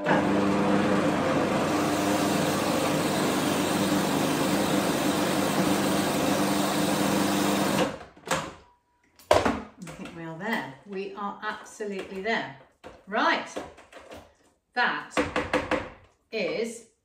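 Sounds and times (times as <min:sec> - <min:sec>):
food processor motor running: 0:00.0 - 0:08.0.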